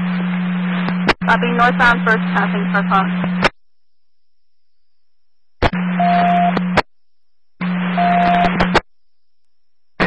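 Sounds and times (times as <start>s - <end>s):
radio static hiss: 0.0s - 3.6s, 7.6s - 8.8s
steady hum: 0.0s - 10.0s.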